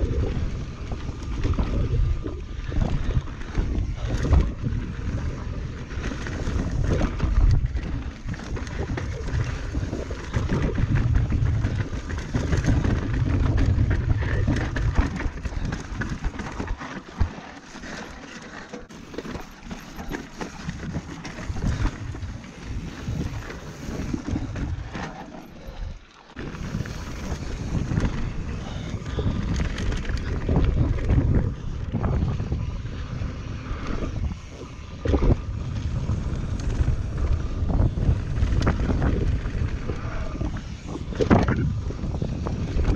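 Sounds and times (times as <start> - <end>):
wind buffeting microphone: 0.0 - 17.4, 19.1 - 42.9
bike knocks and rattles: 0.4 - 25.6.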